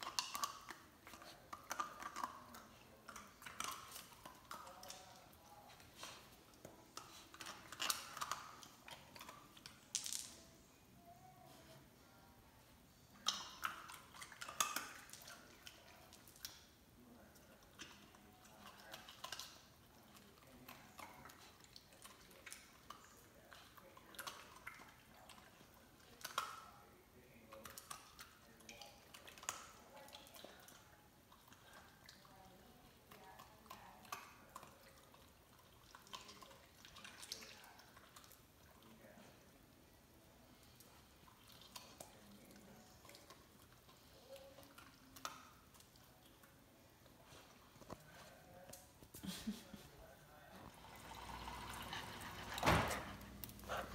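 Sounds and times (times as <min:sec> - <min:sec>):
puppy licking ice: 0:00.0 - 0:09.9, 0:13.2 - 0:50.0, 0:50.6 - 0:53.9
faint clicks and wet ticks: 0:17.3 - 0:26.8, 0:27.5 - 0:39.5, 0:40.5 - 0:49.1.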